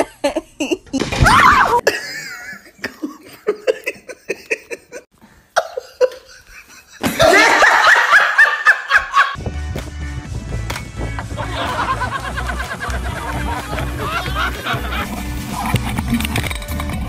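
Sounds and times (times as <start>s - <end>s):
people snickering and laughing: 1.7s - 9.4s, 11.2s - 15.7s
music with steady beat: 9.4s - 16.2s.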